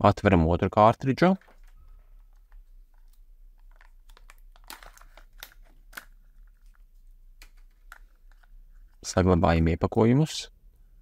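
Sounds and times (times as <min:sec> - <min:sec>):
wrapper crinkling and crackling: 0:01.3 - 0:08.6.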